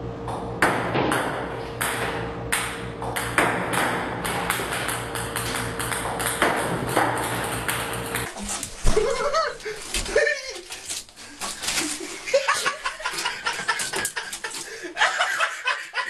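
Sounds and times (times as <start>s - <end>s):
steady low hum: 0.0s - 15.9s
table tennis balls clicking on table: 2.6s - 8.3s.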